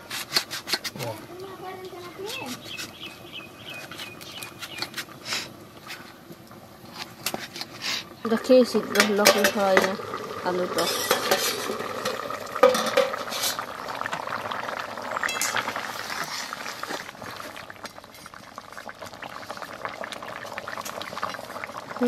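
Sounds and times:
curry bubbling: 0.3 - 22.0
metal lid clank: 8.9 - 9.9, 10.8 - 13.6
metal spatula scraping a pan: 10.8 - 13.6.

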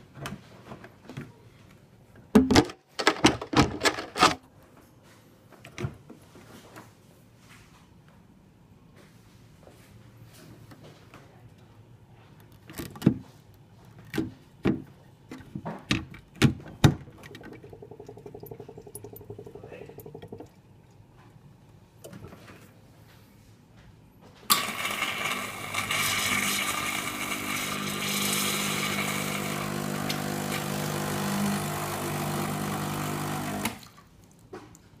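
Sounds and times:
espresso machine buzzing hum: 24.5 - 33.8.

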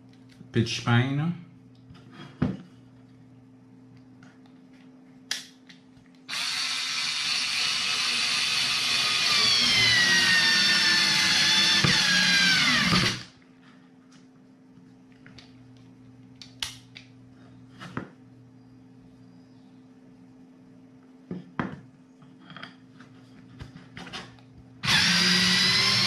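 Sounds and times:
cordless screwdriver whine: 6.3 - 13.2, 24.8 - 26.0.

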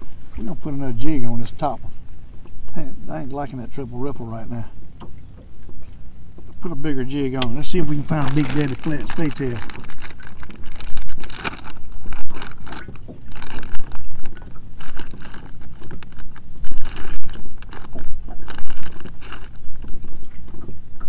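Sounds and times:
fishing lures clattering and rattling: 7.6 - 20.6.

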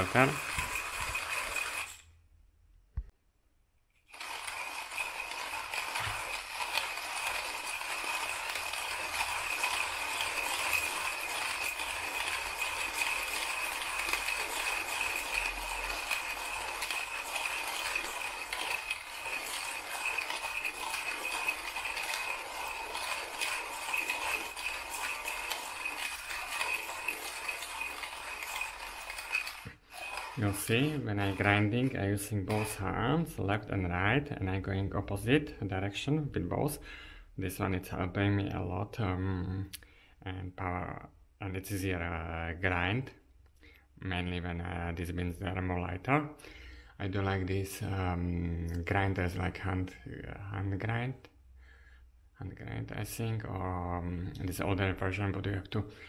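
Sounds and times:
manual coffee grinder crunching beans: 0.0 - 2.1, 4.0 - 35.5.

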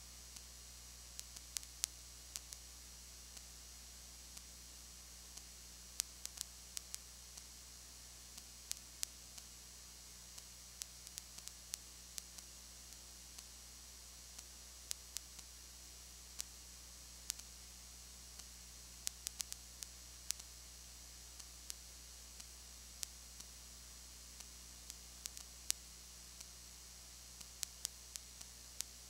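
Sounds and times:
electrical hum and hiss: 0.0 - 29.0
sharp clicks and crackles: 1.2 - 2.6, 5.3 - 7.5, 10.4 - 13.6, 17.2 - 17.6, 18.4 - 20.5, 24.4 - 26.6, 27.4 - 29.0.

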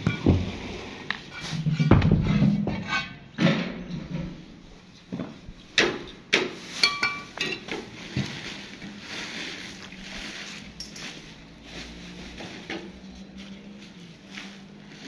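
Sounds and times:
metallic ring: 6.8 - 7.4.

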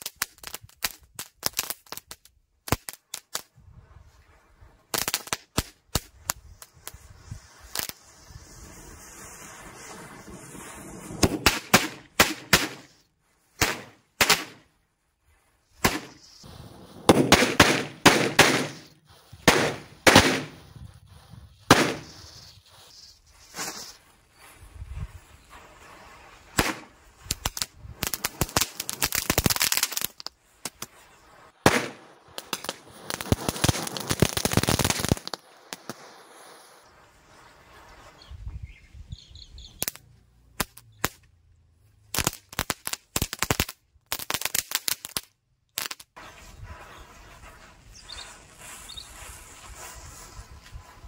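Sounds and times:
firecrackers crackling: 0.0 - 41.3, 42.1 - 51.0
firecracker bangs: 8.6 - 13.0, 13.6 - 14.7, 15.8 - 20.7, 21.6 - 22.5, 26.5 - 36.5
matchsticks hissing: 18.7 - 24.6, 46.2 - 51.0.

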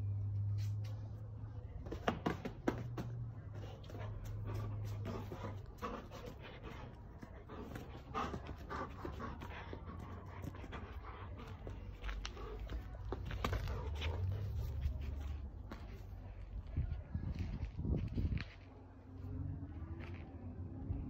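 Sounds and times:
dog panting: 3.5 - 15.4.

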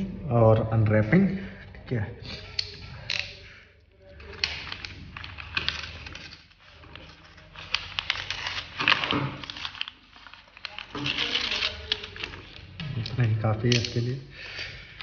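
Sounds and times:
paper mailer crinkling: 4.0 - 14.0
knife slitting paper: 4.2 - 12.6.

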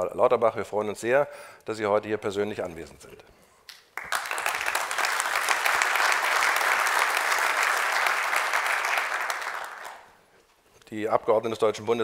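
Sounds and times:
audience applauding: 4.0 - 10.1.

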